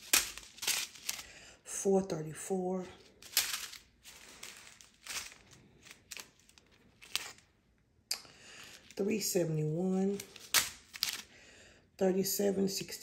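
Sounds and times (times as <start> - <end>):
plastic bags rustling and crinkling: 0.0 - 1.4, 2.5 - 7.6, 8.5 - 11.4.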